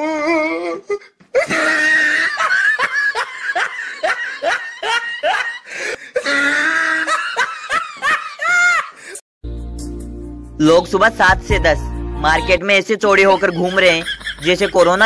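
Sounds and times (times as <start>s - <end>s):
loud laughter: 1.4s - 9.2s, 13.2s - 15.0s.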